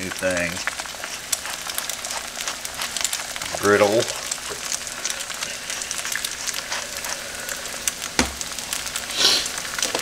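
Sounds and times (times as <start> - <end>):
food sizzling on a griddle: 0.0 - 10.0
thump: 8.2 - 8.4.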